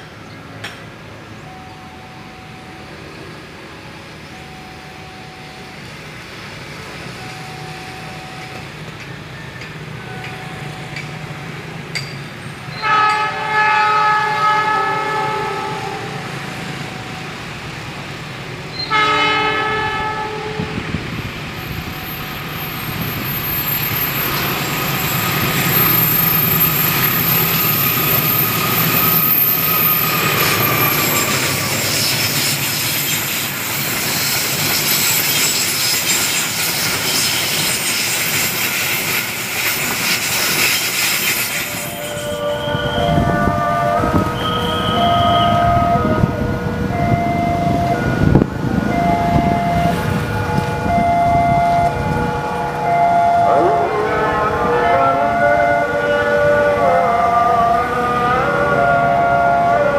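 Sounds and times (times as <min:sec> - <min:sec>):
train rumble: 0:00.0 - 0:59.9
train horn blasts: 0:12.7 - 0:17.4, 0:18.7 - 0:21.0, 0:41.6 - 0:59.9
high wheel squeal: 0:18.7 - 0:19.3, 0:21.2 - 0:46.3.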